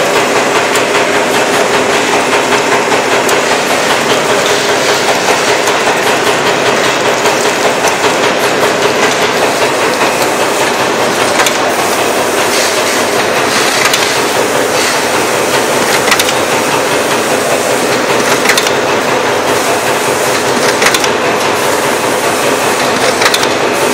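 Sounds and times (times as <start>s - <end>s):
machine mechanical clatter: 0.0s - 23.9s
sharp machine click: 13.6s - 14.2s, 15.9s - 16.4s, 18.2s - 18.8s, 20.3s - 21.2s, 22.8s - 23.6s.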